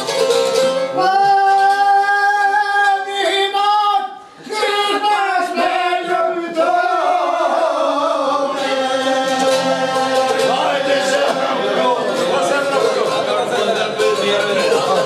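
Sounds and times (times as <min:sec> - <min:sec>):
plucked string instrument: 0:00.0 - 0:03.2, 0:08.5 - 0:15.0
two men singing: 0:01.0 - 0:15.0.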